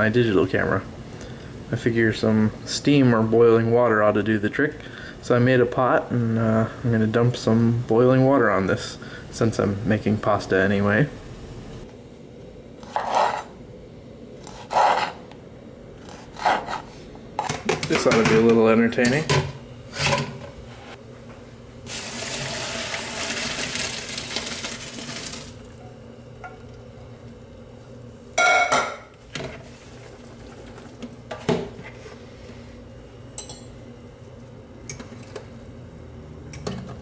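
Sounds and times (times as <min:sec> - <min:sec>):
water pouring into a colander: 0:21.9 - 0:25.7
kitchenware clattering: 0:28.4 - 0:29.1.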